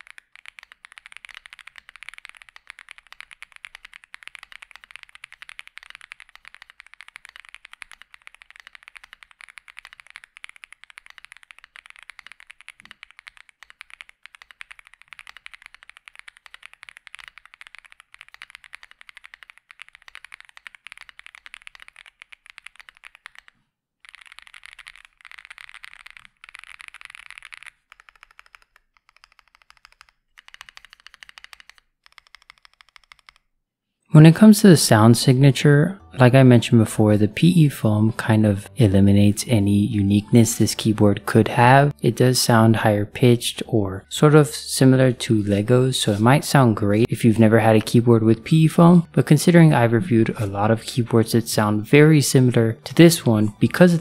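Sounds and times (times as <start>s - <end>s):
fast typing on mechanical keyboard: 0.0s - 33.4s.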